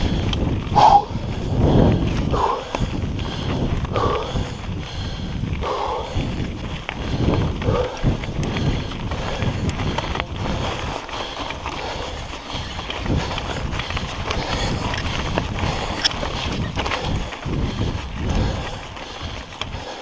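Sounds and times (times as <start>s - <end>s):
wind on microphone: 0.0s - 19.9s
bike rattling: 0.0s - 20.0s
tyres crunching on gravel: 6.3s - 20.0s.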